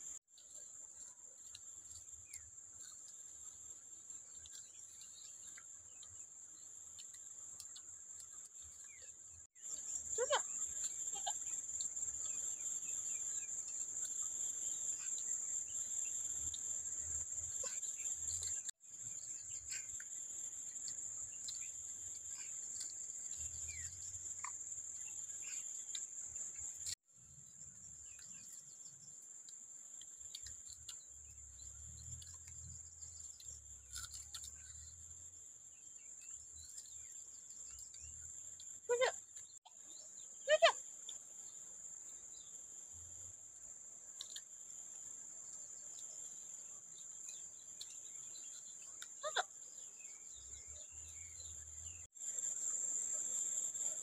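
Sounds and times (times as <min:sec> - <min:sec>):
insect chorus buzzing: 0:00.0 - 0:54.0
wavering insect calls: 0:07.0 - 0:54.0.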